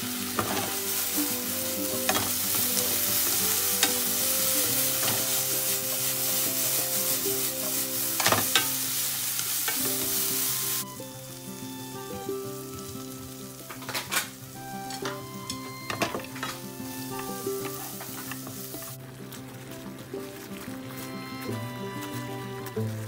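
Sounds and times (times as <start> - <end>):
food sizzling in a frying pan: 0.0 - 23.0
chopsticks clicking on a pan: 8.2 - 9.9.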